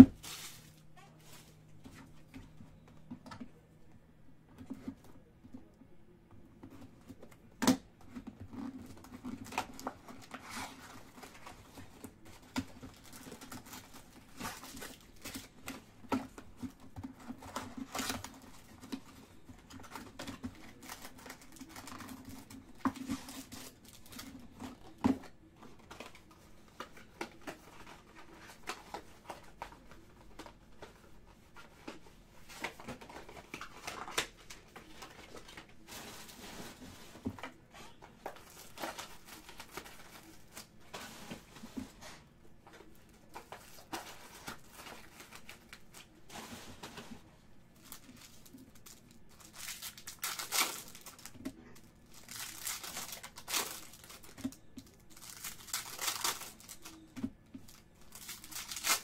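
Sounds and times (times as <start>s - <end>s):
faint low hum: 0.0s - 59.0s
wrapper crinkling and tearing: 47.8s - 59.0s.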